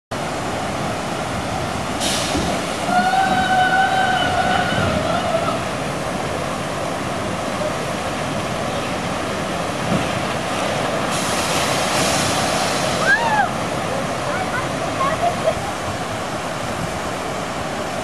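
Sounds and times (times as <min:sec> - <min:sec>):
water park rushing noise: 0:00.1 - 0:18.0
short hiss: 0:02.0 - 0:02.6, 0:11.1 - 0:13.0.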